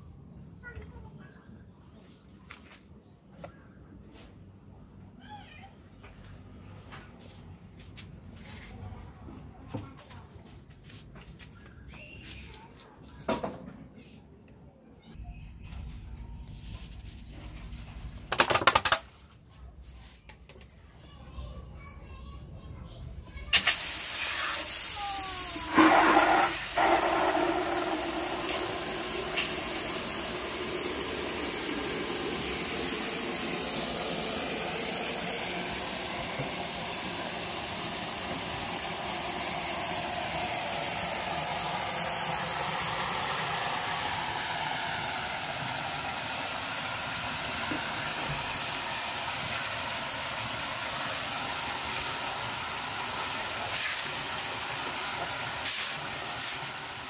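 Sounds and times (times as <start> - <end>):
tap water splashing into bucket: 25.6 - 33.8, 36.2 - 38.9, 47.4 - 50.6.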